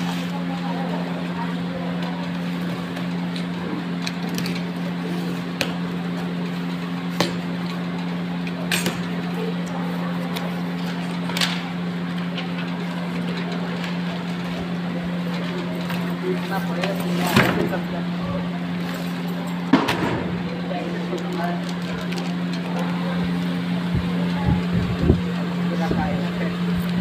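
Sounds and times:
steady machine hum: 0.0s - 27.0s.

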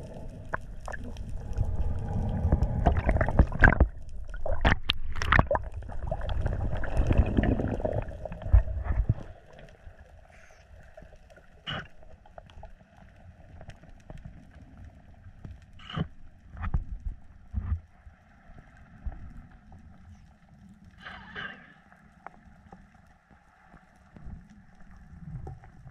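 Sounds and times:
low underwater gurgling: 0.0s - 12.4s.

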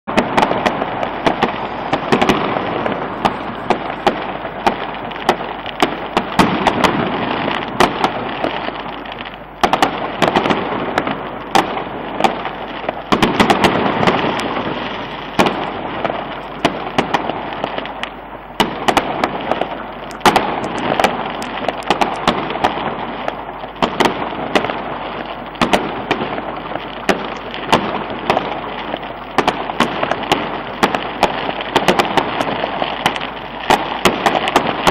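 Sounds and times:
fireworks crackling: 0.1s - 34.9s
sharp firework bangs: 0.1s - 34.9s.

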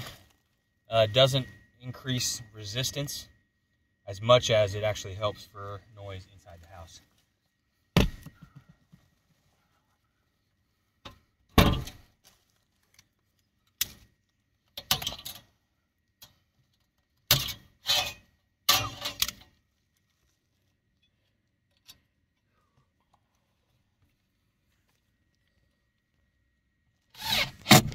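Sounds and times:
foil duct crinkling: 12.1s - 14.7s, 19.5s - 21.0s.

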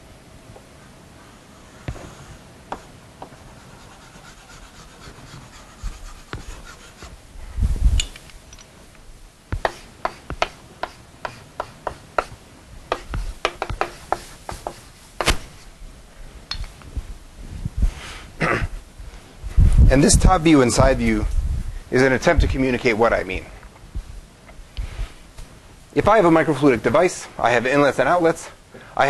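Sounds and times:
chalk tapping and clicking: 2.7s - 7.1s, 9.5s - 14.9s
chalk scraping on blackboard: 3.2s - 7.2s, 9.6s - 15.0s
dull thump: 14.5s - 15.6s.

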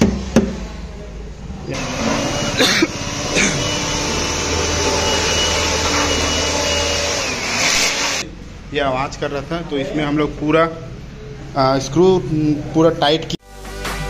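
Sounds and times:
knocks: 0.0s - 0.6s.

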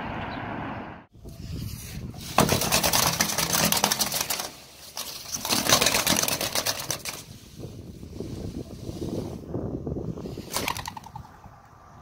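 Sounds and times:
chimney brush scraping flue: 1.2s - 9.5s.

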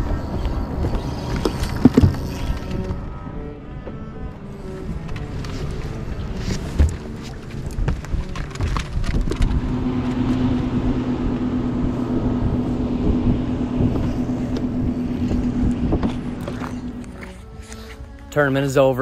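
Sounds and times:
boat motor humming: 0.0s - 19.0s
wind buffeting microphone: 4.9s - 17.6s.

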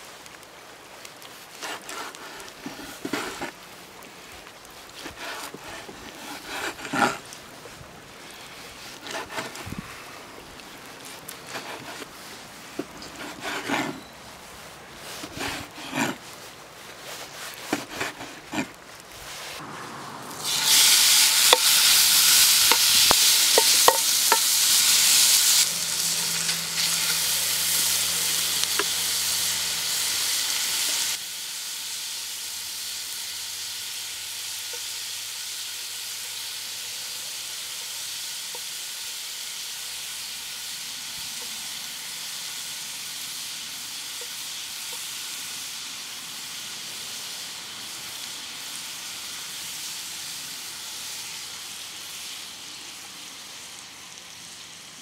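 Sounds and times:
steak sizzling in a frying pan: 20.4s - 55.0s.

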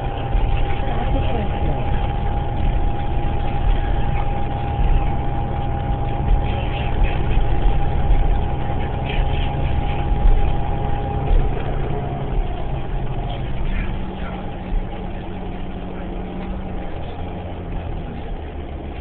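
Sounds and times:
bus engine rumble: 0.0s - 19.0s
steady tone: 0.0s - 19.0s.

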